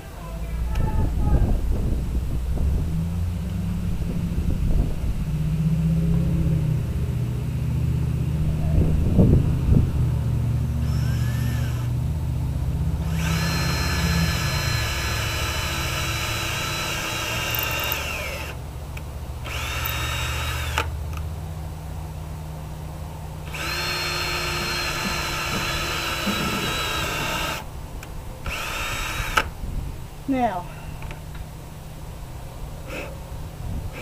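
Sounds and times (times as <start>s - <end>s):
power drill whining: 10.8s - 11.9s, 13.0s - 18.6s, 19.4s - 20.9s, 23.5s - 27.7s, 28.4s - 29.5s.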